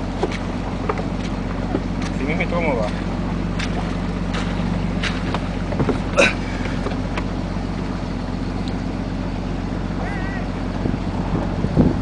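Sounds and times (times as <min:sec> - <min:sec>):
vehicle engine running: 0:00.0 - 0:12.0
knocks and rattles: 0:03.6 - 0:07.3.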